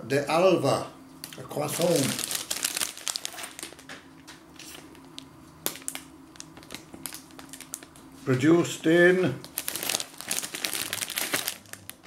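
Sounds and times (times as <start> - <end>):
plastic snack packet crinkling: 1.6 - 3.9, 4.7 - 8.1, 9.4 - 12.0.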